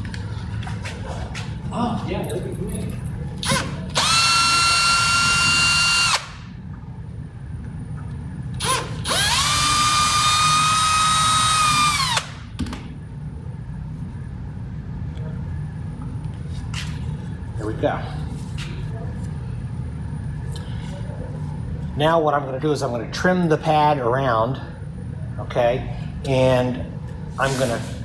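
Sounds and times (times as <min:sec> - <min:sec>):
cordless drill whining: 0:03.5 - 0:06.3, 0:08.6 - 0:12.3.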